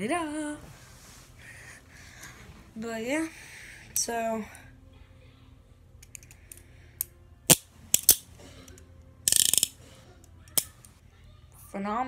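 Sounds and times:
handcuffs ratchet clicking: 0:06.0 - 0:09.8, 0:10.5 - 0:10.9.

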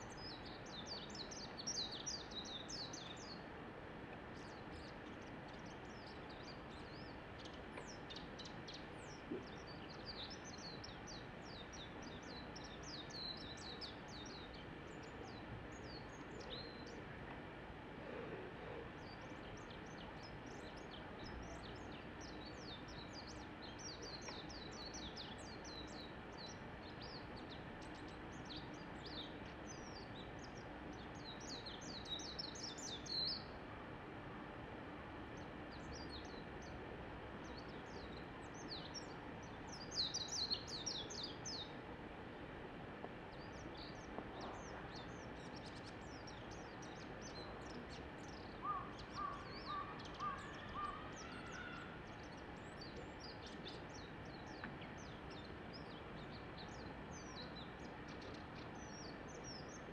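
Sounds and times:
bird twittering warble: 0:43.5 - 0:52.0.

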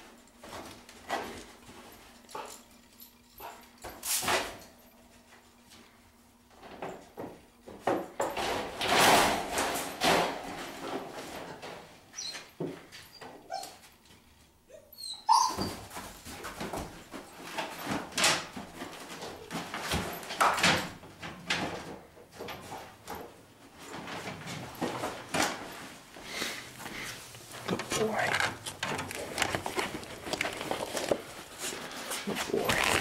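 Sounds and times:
dog whining: 0:13.1 - 0:13.8, 0:14.7 - 0:15.8.

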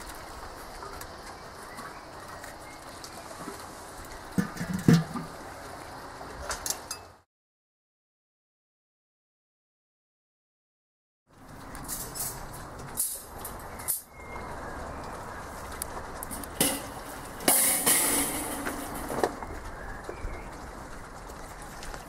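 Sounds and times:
outdoor background noise: 0:00.0 - 0:07.3, 0:11.3 - 0:22.0
metal grate clanking on barbecue: 0:04.4 - 0:05.3, 0:16.3 - 0:19.4.

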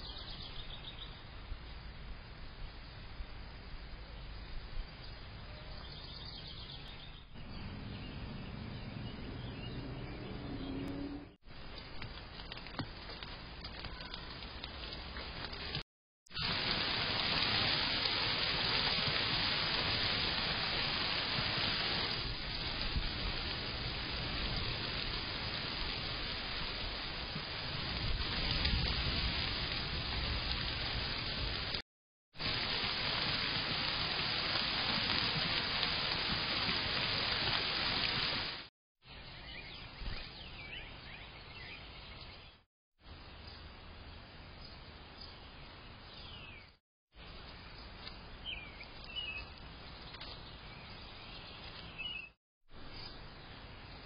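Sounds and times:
quiet outdoor background noise: 0:00.0 - 0:31.8, 0:39.0 - 0:54.0
birds chirping: 0:05.0 - 0:11.4, 0:39.1 - 0:42.6
steady rain falling: 0:11.5 - 0:31.8, 0:32.4 - 0:38.7.

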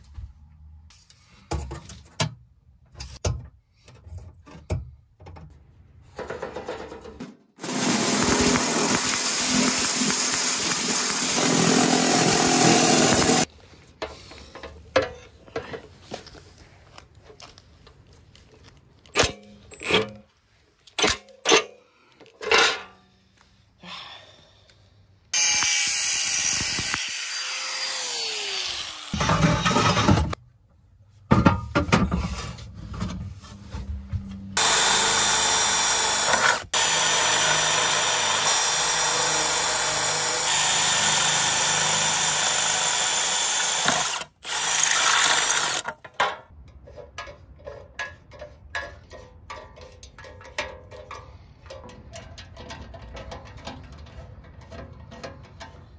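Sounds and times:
drill boring through metal: 0:07.6 - 0:13.5, 0:25.4 - 0:30.4, 0:34.6 - 0:45.9
reciprocating saw cutting metal: 0:07.6 - 0:13.5, 0:25.4 - 0:30.4, 0:34.6 - 0:45.9.

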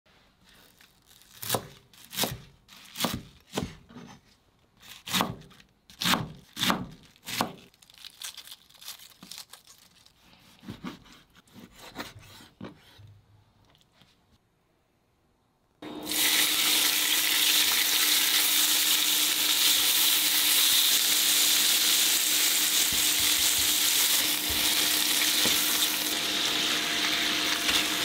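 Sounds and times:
knife chopping on cutting board: 0:01.4 - 0:04.1, 0:05.0 - 0:07.6, 0:10.5 - 0:13.0.

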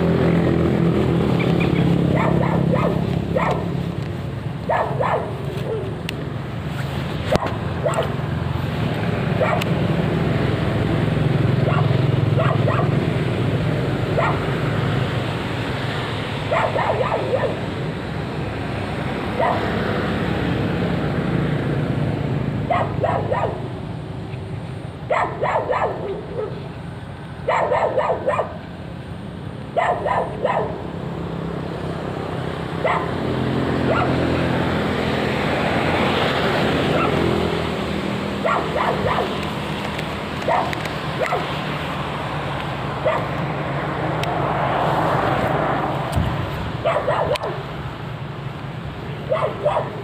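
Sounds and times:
dog barking: 0:02.1 - 0:03.7, 0:04.7 - 0:05.9, 0:07.4 - 0:08.2, 0:09.4 - 0:09.7, 0:11.6 - 0:13.0, 0:14.1 - 0:14.5, 0:16.5 - 0:17.6, 0:19.3 - 0:19.7, 0:22.7 - 0:23.7, 0:25.1 - 0:26.6, 0:27.4 - 0:28.6, 0:29.8 - 0:30.8, 0:32.8 - 0:33.2, 0:33.8 - 0:34.2, 0:36.9 - 0:37.3, 0:38.4 - 0:39.4, 0:40.4 - 0:41.5, 0:43.0 - 0:43.4, 0:46.8 - 0:47.6, 0:49.3 - 0:50.0.

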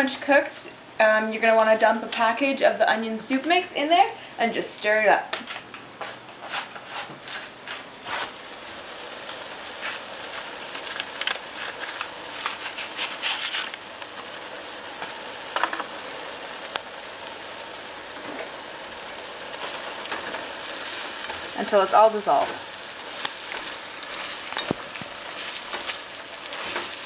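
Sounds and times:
meat sizzling in a frying pan: 0:07.4 - 0:27.0
paper packet rustling: 0:09.8 - 0:13.8, 0:19.6 - 0:27.0.

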